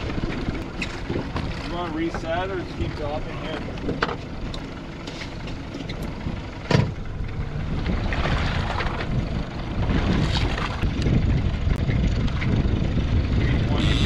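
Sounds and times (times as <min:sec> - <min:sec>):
wind rumbling on microphone: 0:00.0 - 0:04.6, 0:05.9 - 0:14.0
water washing against boat hull: 0:07.7 - 0:11.3.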